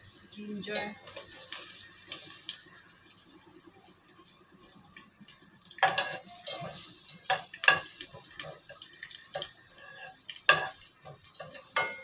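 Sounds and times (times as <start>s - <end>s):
ginger sizzling in oil: 0.0s - 12.0s
metal utensil scraping a pot: 5.8s - 12.0s.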